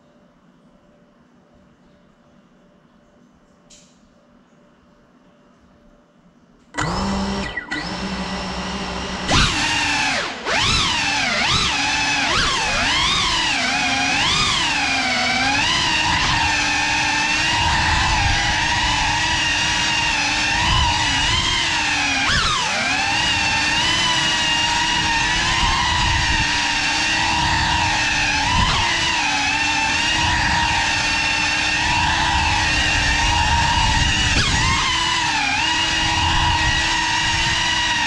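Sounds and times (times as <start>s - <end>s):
drone motors whining: 6.8s - 38.0s.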